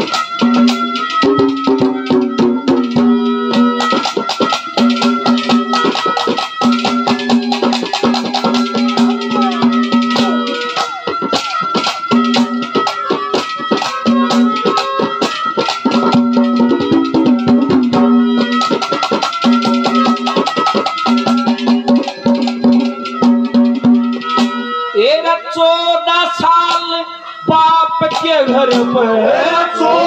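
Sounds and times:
long held melody notes: 0.0s - 25.6s
drums in fast rhythm: 0.0s - 30.0s
man singing: 25.0s - 30.0s.

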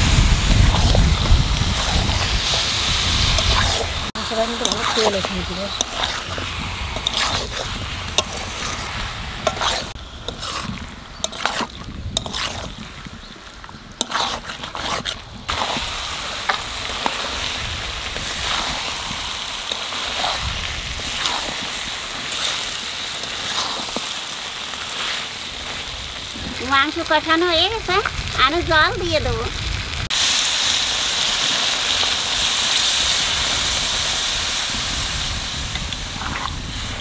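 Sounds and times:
chicken sizzling in oil: 0.0s - 37.0s
spatula scraping pan: 0.6s - 13.4s, 14.0s - 26.0s, 36.2s - 36.6s.

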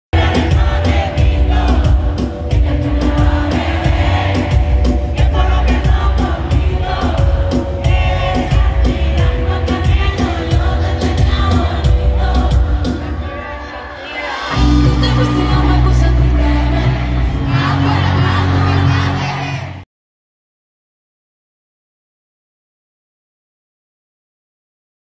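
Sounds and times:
live band with heavy bass beat: 0.1s - 13.2s, 14.5s - 19.8s
woman singing: 5.1s - 19.6s.

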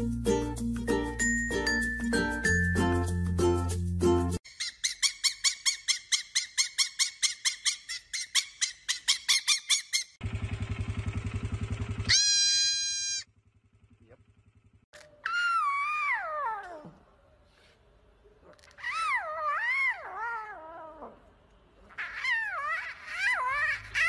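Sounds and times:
fox high chirping calls: 4.5s - 10.2s, 15.2s - 17.0s, 18.5s - 21.2s, 21.8s - 24.0s
goat kid bleating: 12.1s - 13.3s.

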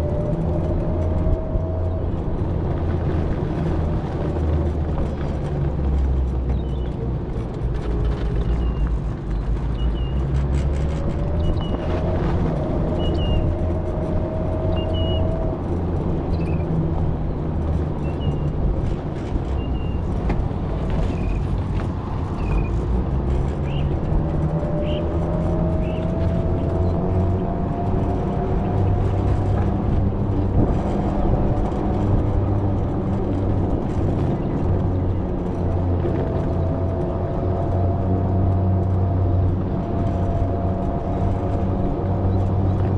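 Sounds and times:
vehicle motor and road rumble: 0.0s - 42.9s.

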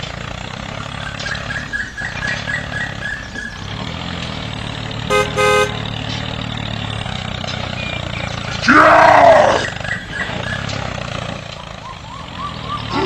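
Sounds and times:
tractor engine droning: 0.0s - 13.0s
tractor horn toots: 5.1s - 6.0s.

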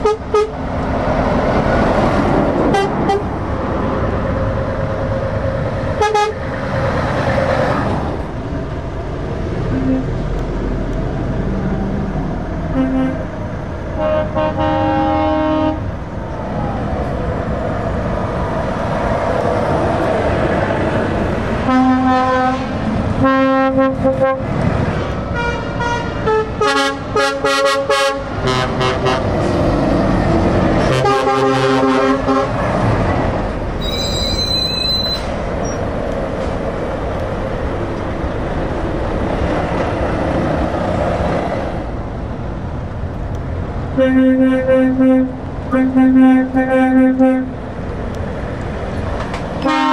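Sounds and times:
truck horn blasts: 0.0s - 0.6s, 2.7s - 3.3s, 6.0s - 6.4s, 9.7s - 10.1s, 12.7s - 13.3s, 14.0s - 15.9s, 21.6s - 29.4s, 30.8s - 32.6s, 44.0s - 47.6s, 49.6s - 49.9s
diesel truck engines: 0.0s - 49.9s.

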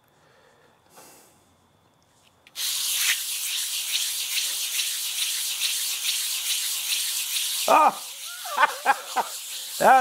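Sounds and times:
sharpening stone scrubbing on paper: 2.6s - 10.0s.

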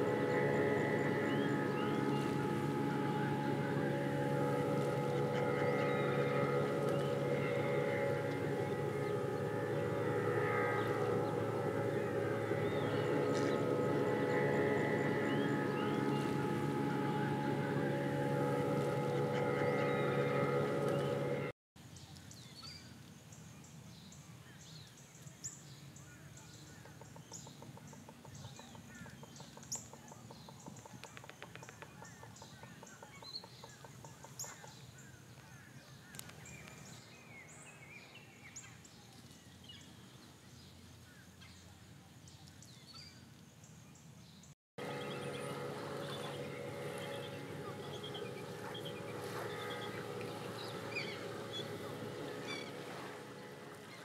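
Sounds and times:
steady low hum: 0.0s - 21.6s, 44.8s - 54.0s
small birds chirping: 44.8s - 54.0s.

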